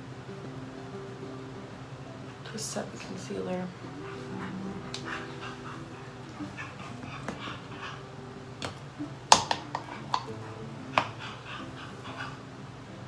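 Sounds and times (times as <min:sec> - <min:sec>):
clicks and taps of handled items: 0:08.6 - 0:10.3.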